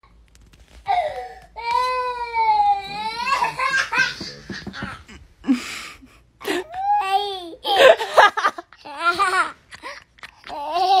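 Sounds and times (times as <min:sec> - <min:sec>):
toddler crying: 0:01.1 - 0:04.4, 0:10.5 - 0:11.0
toddler laughing: 0:02.8 - 0:05.2, 0:06.5 - 0:11.0.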